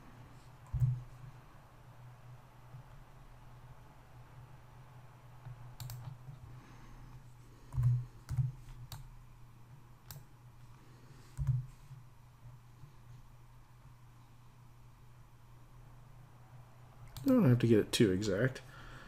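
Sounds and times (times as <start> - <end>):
low electrical hum: 0.0 - 19.0
computer mouse and keyboard clicks: 0.6 - 1.1, 5.4 - 6.4, 7.7 - 9.1, 10.0 - 10.3, 11.3 - 12.0.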